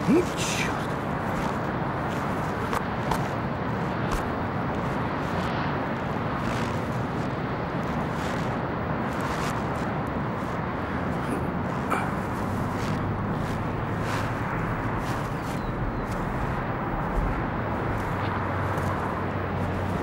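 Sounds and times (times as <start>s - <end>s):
traffic rumble: 0.0s - 20.0s
faint scuffs: 12.4s - 19.0s.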